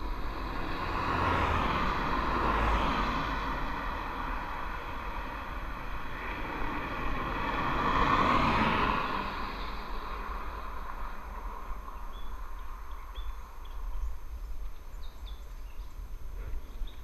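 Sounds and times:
car passing by: 0.0s - 13.2s
wind rumble on microphone: 0.0s - 17.0s.

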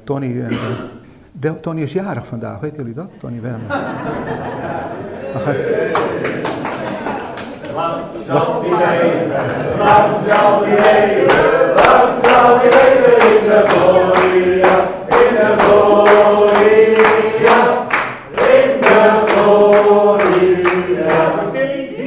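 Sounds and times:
congregation singing: 3.7s - 22.0s
people clapping in time: 5.8s - 8.2s, 9.3s - 21.5s.

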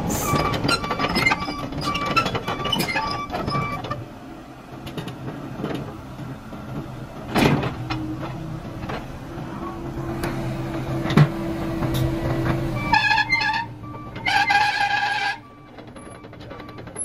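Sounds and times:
excavator engine and hydraulics: 0.0s - 17.0s
loud clunk: 7.3s - 9.0s.

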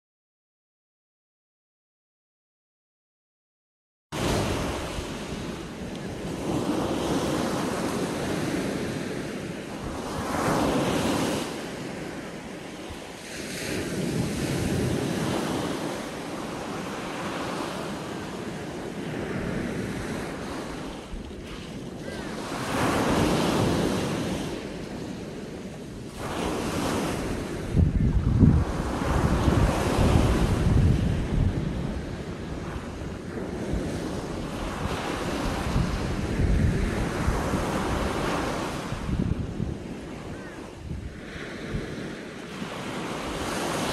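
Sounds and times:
waves breaking on shore: 4.2s - 43.9s.

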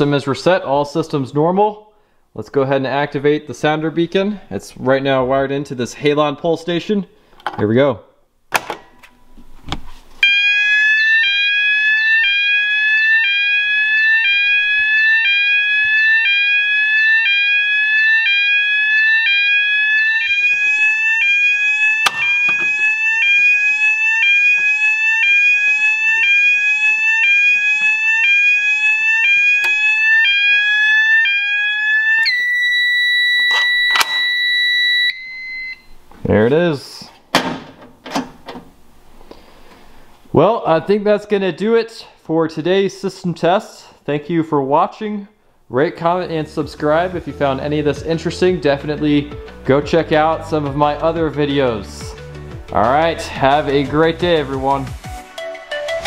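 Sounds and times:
steady high alarm tone: 10.2s - 35.9s
electronic alarm sweeping tone: 10.2s - 36.0s.

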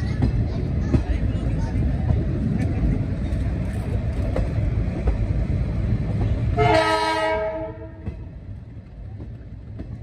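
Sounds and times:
train rumble: 0.0s - 10.0s
train horn blast: 6.5s - 8.0s.

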